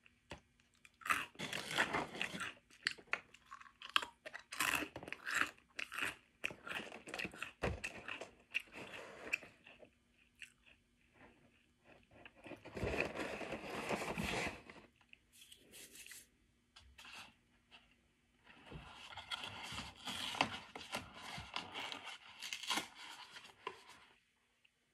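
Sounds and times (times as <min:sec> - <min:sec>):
cereal crunching while chewed: 0:00.4 - 0:15.6.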